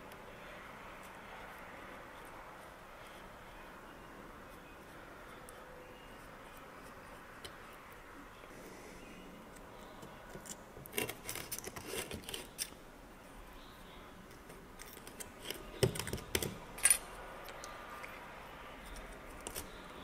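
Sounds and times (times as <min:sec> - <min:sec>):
metal clips clicking and scraping: 0:10.3 - 0:12.8, 0:14.3 - 0:19.8.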